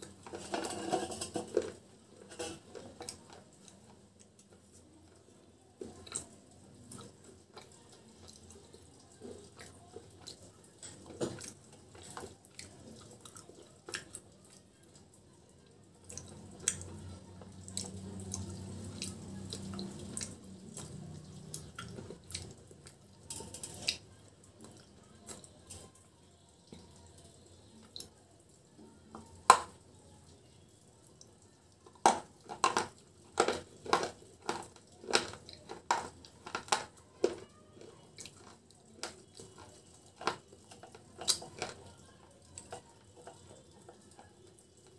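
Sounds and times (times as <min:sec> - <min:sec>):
crunching chips: 0:32.0 - 0:42.0.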